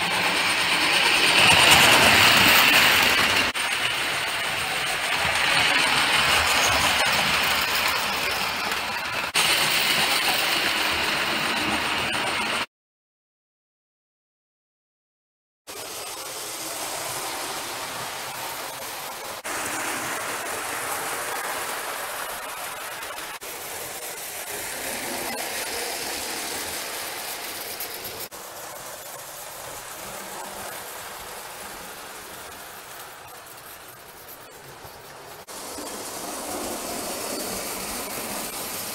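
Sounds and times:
toy train motor: 0.0 - 12.6, 15.7 - 38.9
toy train wheels clattering on rails: 0.0 - 12.6, 15.7 - 38.9.

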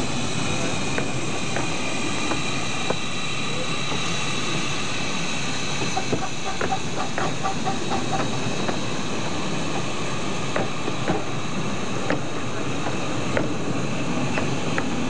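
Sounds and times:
steam hissing: 0.0 - 15.0
wheels clicking on track: 5.8 - 8.9.

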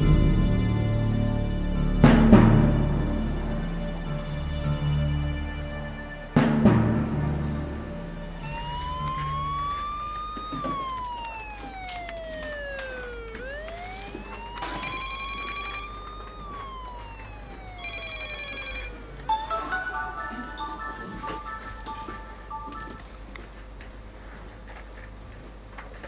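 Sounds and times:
siren wailing: 8.0 - 23.1.

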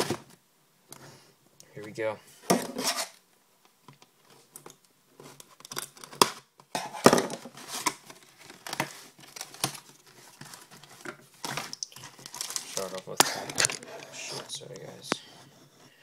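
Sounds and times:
plastic shrink-wrap tearing and crinkling: 7.5 - 14.3.

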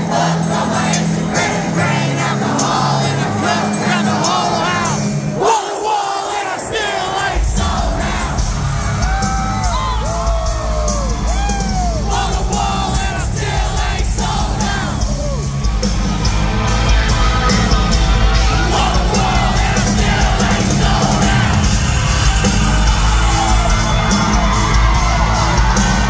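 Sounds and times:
crowd yelling and singing: 0.0 - 26.0
live country-rock band: 7.3 - 26.0.

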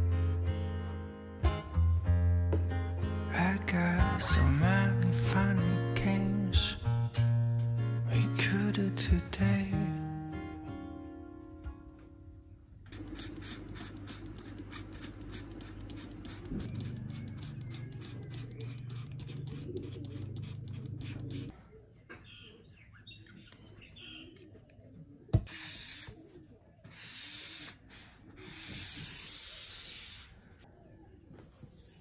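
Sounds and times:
spray bottle hissing sprays: 13.0 - 21.5
faint bird chirps: 16.7 - 20.3, 21.6 - 27.5.

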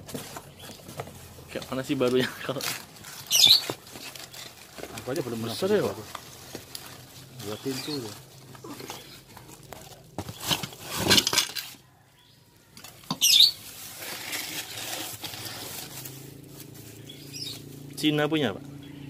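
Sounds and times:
plastic bag crinkling: 0.5 - 11.8, 12.9 - 17.1.

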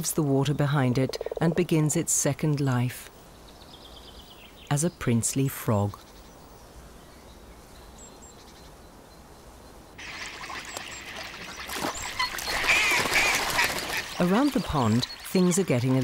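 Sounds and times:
water trickling and splashing: 10.0 - 16.0.

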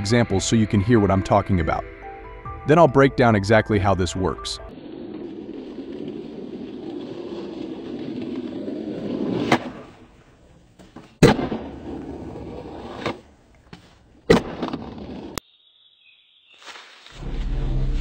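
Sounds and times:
skateboard wheels rolling on concrete: 4.7 - 15.4.

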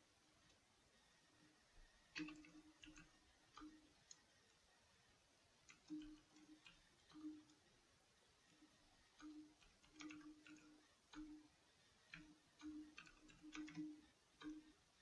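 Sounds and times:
faint keyboard typing: 1.8 - 4.6, 5.6 - 7.7, 8.4 - 15.0.

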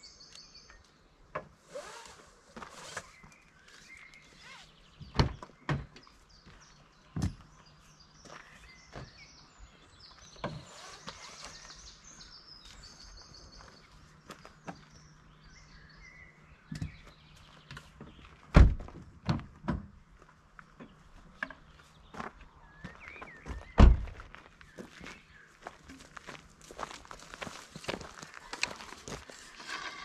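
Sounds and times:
birds chirping: 0.0 - 18.5, 20.4 - 30.0.

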